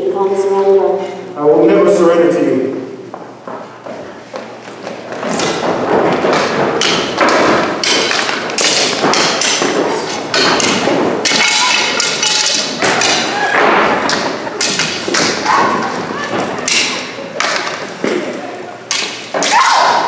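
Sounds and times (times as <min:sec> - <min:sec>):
prop swords striking: 0:05.2 - 0:18.2, 0:18.9 - 0:20.0.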